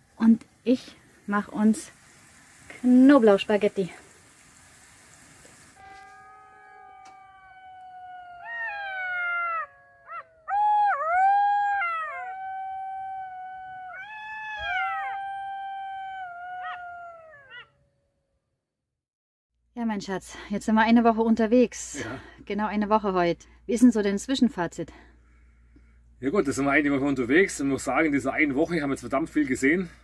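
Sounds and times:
jackals howling: 0:05.8 - 0:17.8.

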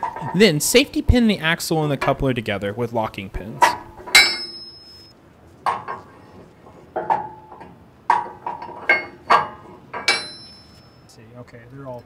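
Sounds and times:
metallic clinks and clanks: 0:03.6 - 0:05.1, 0:07.0 - 0:11.2.

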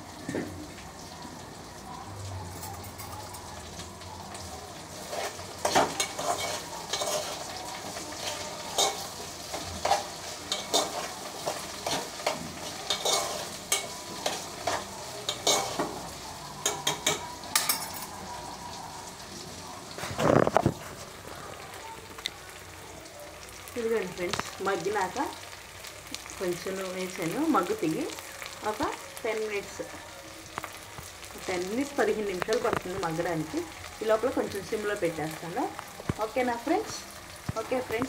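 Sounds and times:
okra sizzling in oil: 0:00.0 - 0:38.0
spoon scraping a pot: 0:05.0 - 0:16.0.

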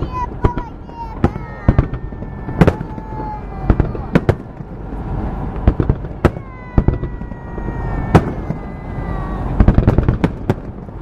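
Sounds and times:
continuous low rumble: 0:00.0 - 0:11.0
fireworks bangs: 0:00.0 - 0:11.0.

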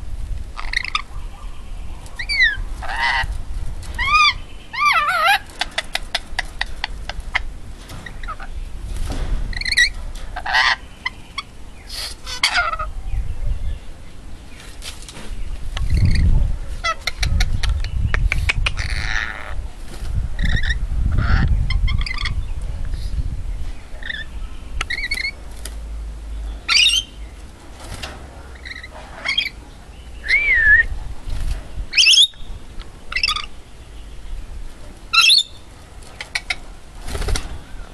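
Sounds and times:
parrot loud sharp screeches: 0:02.2 - 0:03.3, 0:11.9 - 0:12.9
parrot chirps and whistles: 0:32.0 - 0:32.4.

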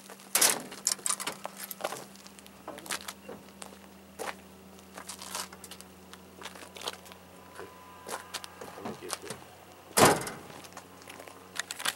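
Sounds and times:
steady low hum: 0:00.0 - 0:11.9
loud thump: 0:10.0 - 0:10.5.

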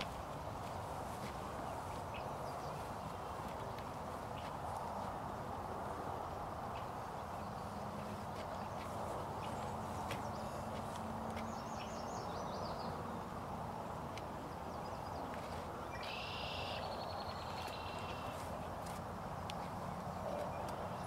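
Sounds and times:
songbird singing: 0:00.0 - 0:21.0.

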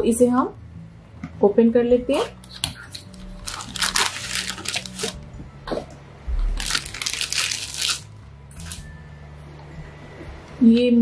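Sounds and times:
plastic packaging crinkling: 0:02.5 - 0:05.3, 0:06.6 - 0:08.8.

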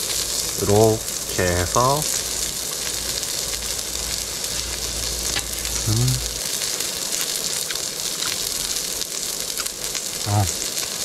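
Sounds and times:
meat sizzling on grill pan: 0:00.0 - 0:11.0.

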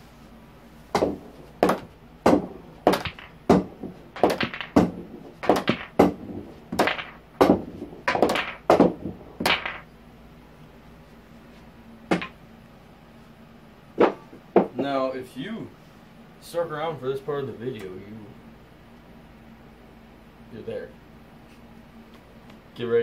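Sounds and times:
pool balls clacking: 0:00.9 - 0:09.9, 0:12.1 - 0:12.4, 0:14.0 - 0:14.9.

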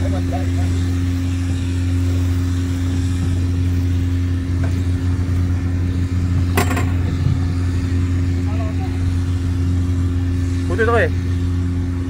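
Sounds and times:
engine humming: 0:00.0 - 0:12.0.

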